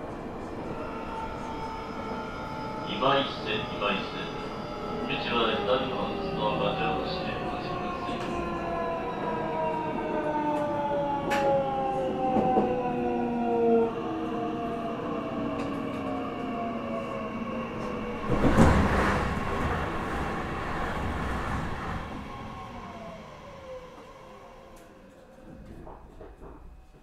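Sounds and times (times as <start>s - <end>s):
wheels rumbling on rail: 15.3s - 27.0s.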